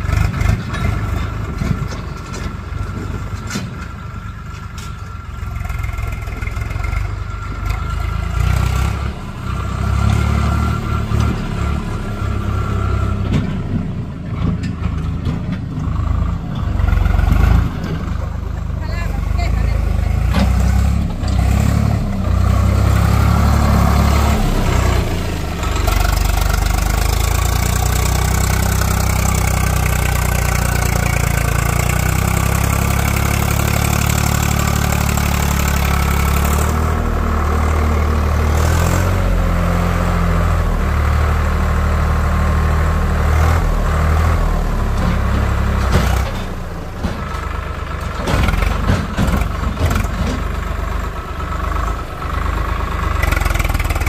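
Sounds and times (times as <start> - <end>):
tractor diesel engine revving: 0.0 - 54.0.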